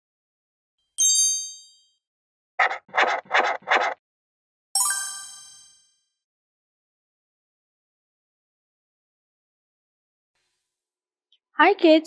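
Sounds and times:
bright high chime: 1.0s - 1.9s, 4.8s - 6.0s
scratchy pencil-stroke sounds: 2.6s - 4.0s
fuller chime ringing: 4.8s - 5.9s.

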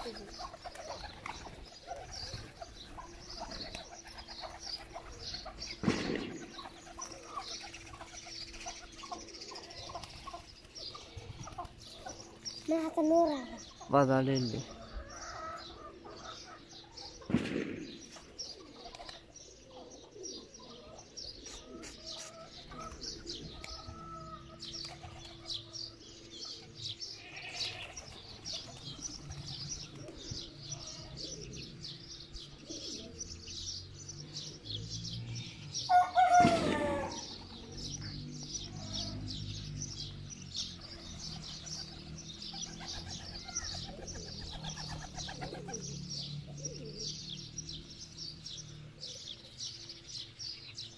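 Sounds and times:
pigeons flapping wings: 0.0s - 8.9s, 17.2s - 19.3s, 41.0s - 45.8s
pigeons cooing: 0.0s - 13.8s, 14.6s - 50.8s.

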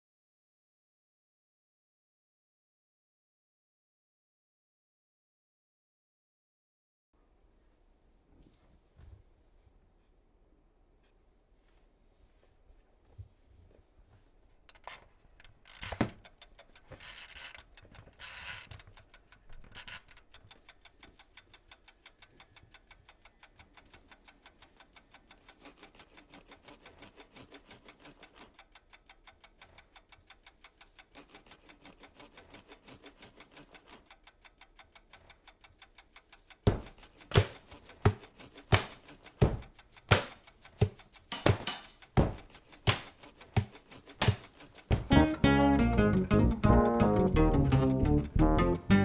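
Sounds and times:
clockwork timer ticking: 15.7s - 49.0s
drum and tambourine hits: 36.7s - 45.6s.

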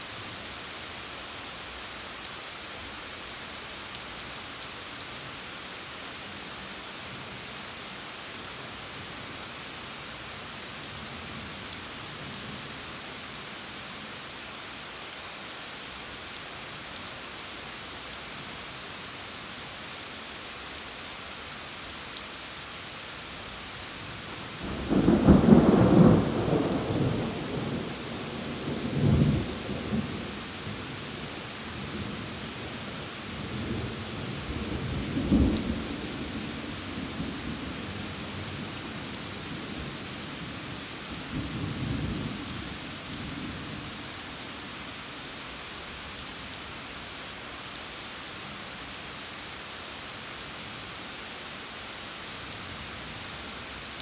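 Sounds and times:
steady rain: 0.0s - 54.0s
thunder rumbling: 24.6s - 30.3s.

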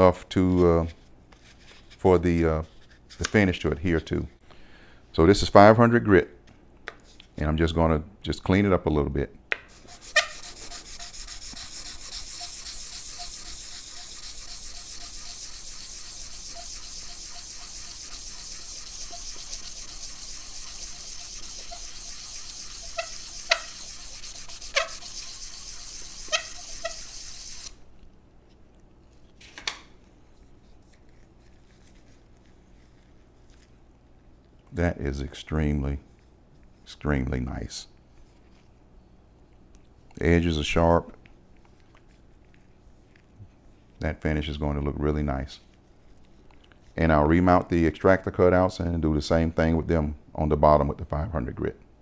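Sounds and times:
sandpaper rubbing on wood: 9.7s - 27.8s.

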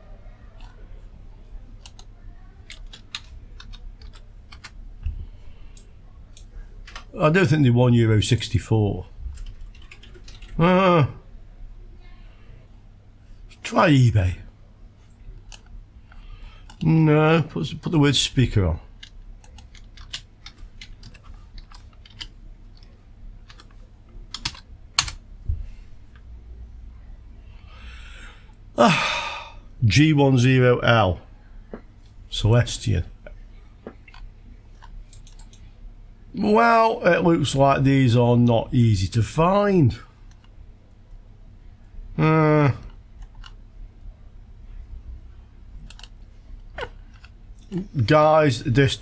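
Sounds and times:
low steady hum: 0.0s - 49.0s
computer keyboard typing: 1.8s - 4.8s, 9.3s - 10.6s, 19.0s - 25.2s, 34.0s - 35.6s, 45.8s - 46.2s.

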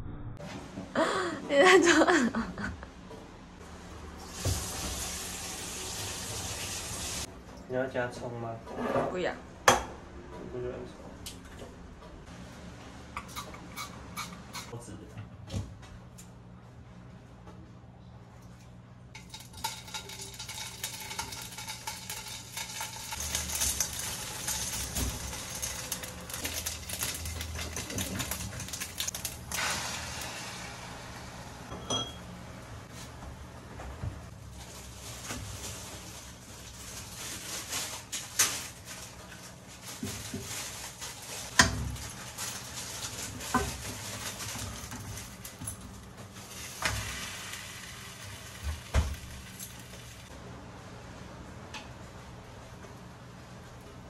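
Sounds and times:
food sizzling in a wok: 4.2s - 7.3s, 19.5s - 31.6s, 46.4s - 50.3s
frying hiss: 4.2s - 7.3s, 19.2s - 31.7s, 46.3s - 50.3s.

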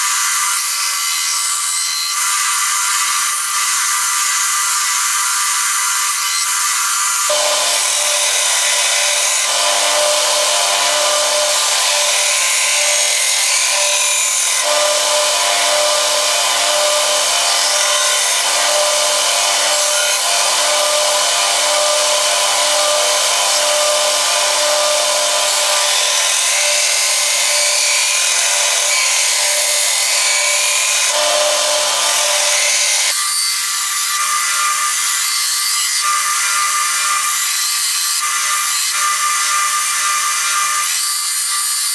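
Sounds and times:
blade grinding on belt grinder: 0.0s - 41.9s
grinder motor hum: 7.2s - 33.2s.

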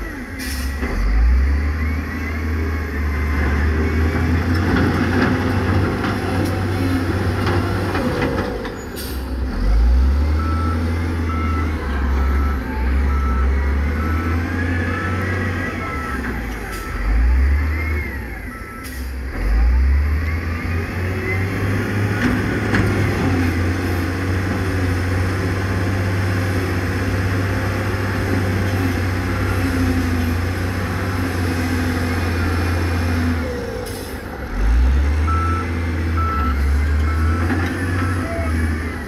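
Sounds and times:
heavy diesel engines rumbling: 0.0s - 39.0s
reversing alarm beeping: 9.7s - 22.0s, 35.2s - 39.0s.

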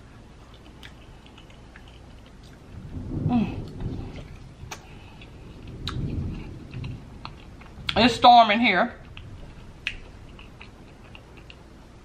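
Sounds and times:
faint clicks of eating: 0.5s - 2.6s, 9.0s - 11.7s
distant thunder rumbling: 2.5s - 10.8s.

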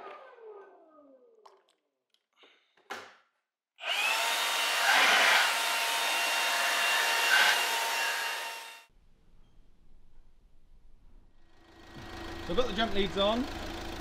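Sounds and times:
small motor machine whirring: 3.8s - 8.8s.

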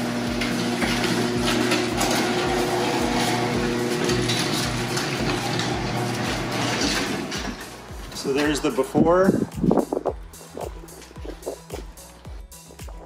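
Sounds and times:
garage door opener motor hum: 0.0s - 9.0s.

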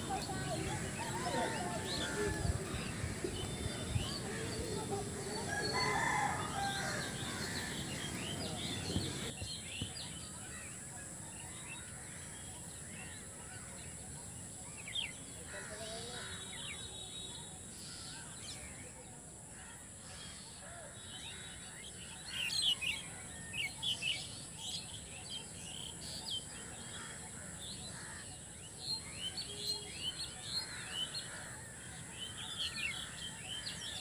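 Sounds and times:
small birds chirping: 0.0s - 18.8s
rooster crowing: 5.2s - 9.3s.

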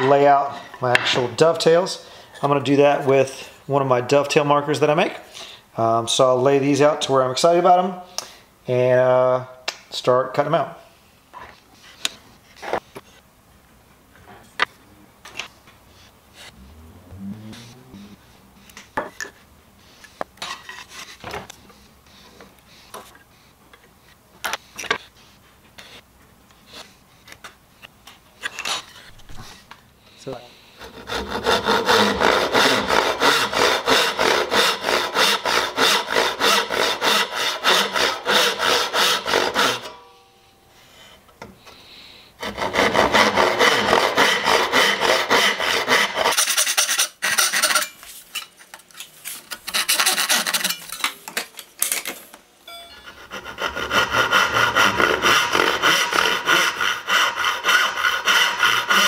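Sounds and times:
hand saw strokes on wood: 30.2s - 40.0s, 42.4s - 48.0s, 49.7s - 50.8s, 52.9s - 59.0s.

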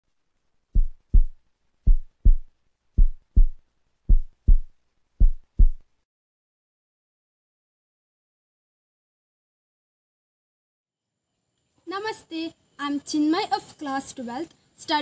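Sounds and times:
heartbeat thumps: 0.8s - 5.9s.

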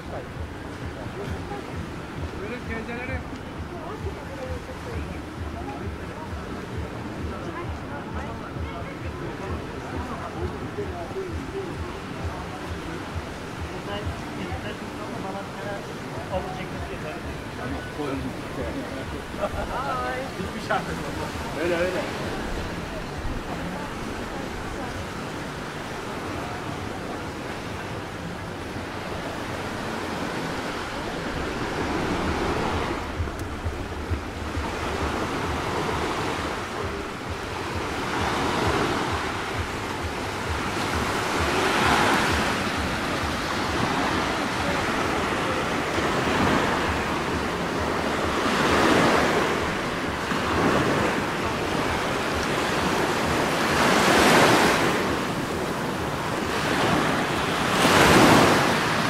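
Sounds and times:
sea waves washing onto shore: 0.0s - 59.0s
wind buffeting microphone: 30.8s - 59.0s.

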